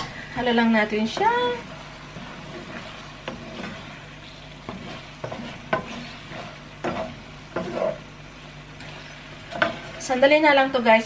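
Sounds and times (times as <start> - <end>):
food sizzling in a pan: 0.0 - 11.0
wooden spatula scraping a pan: 0.4 - 10.2.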